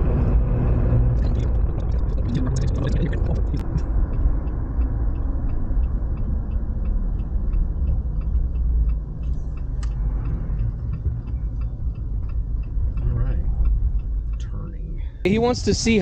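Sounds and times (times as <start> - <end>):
car engine and road rumble: 0.0 - 16.0
turn signal clicking: 3.6 - 14.8.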